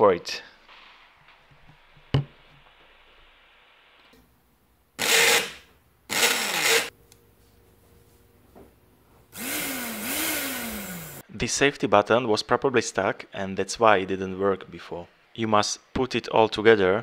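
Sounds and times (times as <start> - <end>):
blender motor spinning: 5.0 - 6.9, 9.3 - 11.2.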